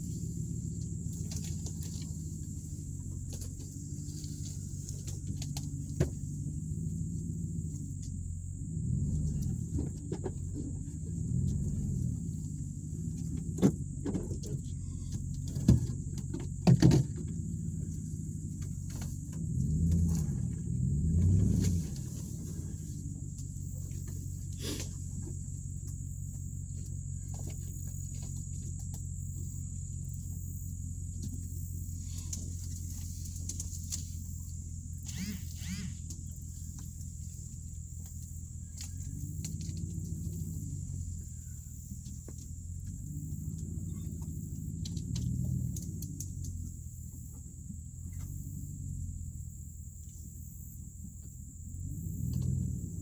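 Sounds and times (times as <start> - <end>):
truck engine rumbling: 0.0 - 53.0
short squeaky chirps: 35.0 - 36.1.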